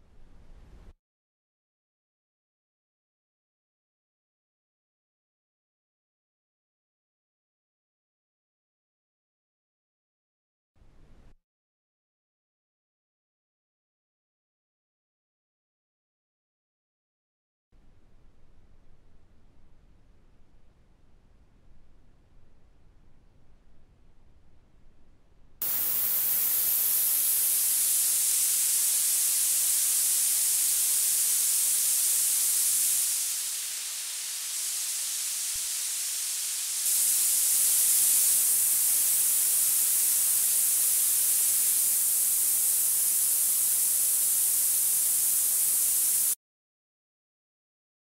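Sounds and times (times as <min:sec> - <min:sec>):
synthesized noise hiss: 0:25.6 - 0:46.4.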